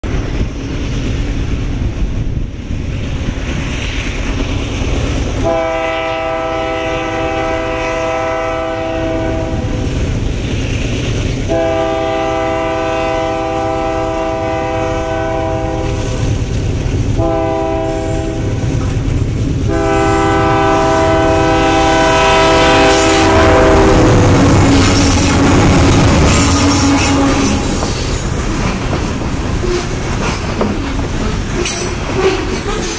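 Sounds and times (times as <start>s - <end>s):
locomotive engines rumbling: 0.0s - 32.9s
multi-note train horn: 5.4s - 9.8s, 11.5s - 16.3s, 17.2s - 18.8s, 19.6s - 28.0s
wheels clattering over rails: 24.1s - 32.9s.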